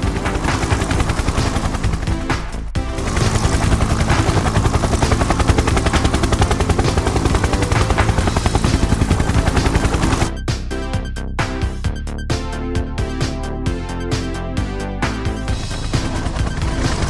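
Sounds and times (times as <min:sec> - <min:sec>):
helicopter rotor chopping: 0:00.0 - 0:10.4, 0:15.2 - 0:17.0.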